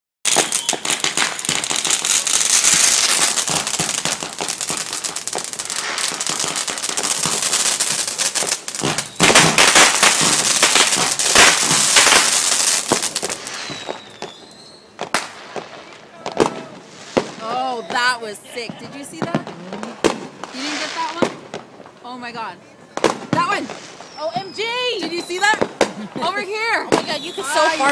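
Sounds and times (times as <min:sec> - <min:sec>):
fireworks bangs: 0:00.2 - 0:27.9
fireworks crackling and popping: 0:00.2 - 0:27.9
high whistle: 0:00.3 - 0:01.0, 0:09.0 - 0:09.4, 0:13.6 - 0:14.9, 0:24.0 - 0:25.6, 0:26.9 - 0:27.9.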